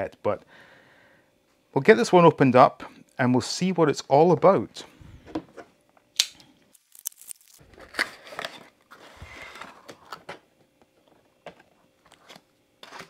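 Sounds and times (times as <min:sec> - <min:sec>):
plastic crinkling: 0:06.7 - 0:08.7.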